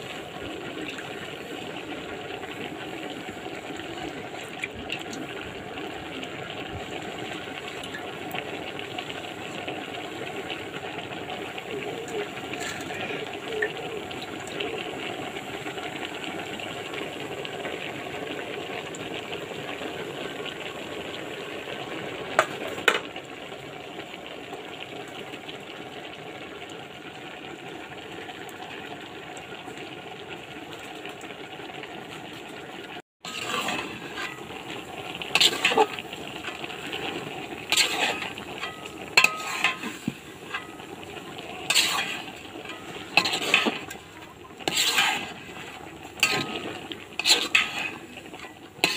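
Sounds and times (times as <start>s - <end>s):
pot sizzling: 0.0s - 48.9s
utensil scraping a pot: 11.3s - 14.6s, 33.2s - 48.9s.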